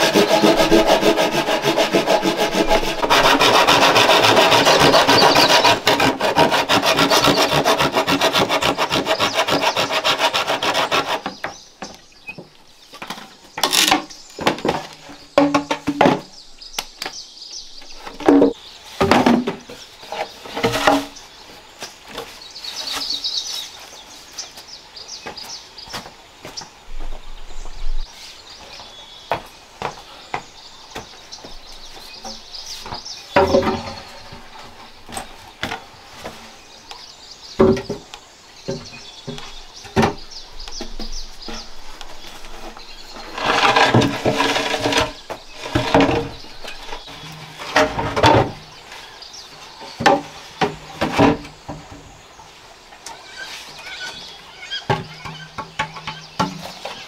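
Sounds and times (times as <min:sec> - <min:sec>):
bamboo tubes knocking: 0:00.0 - 0:16.3, 0:32.2 - 0:34.4, 0:37.6 - 0:42.1, 0:54.9 - 0:57.0
high chirping from forest: 0:52.3 - 0:57.0.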